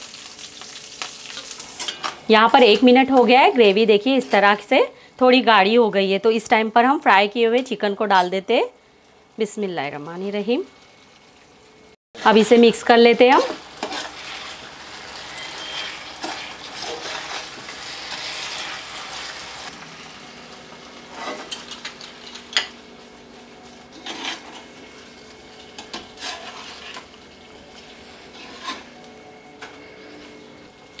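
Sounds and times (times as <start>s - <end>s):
chicken sizzling in frying pan: 0.0s - 2.3s, 12.8s - 28.8s
metal spatula scraping pan: 13.3s - 19.0s, 21.1s - 21.8s, 23.9s - 24.7s, 25.8s - 27.1s, 28.2s - 29.0s.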